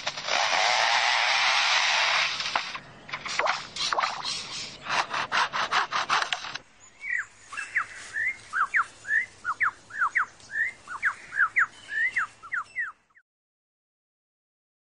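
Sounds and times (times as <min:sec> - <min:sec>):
lyrebird mimicking chainsaw: 0:00.1 - 0:06.6
bird whistled notes: 0:07.0 - 0:13.0.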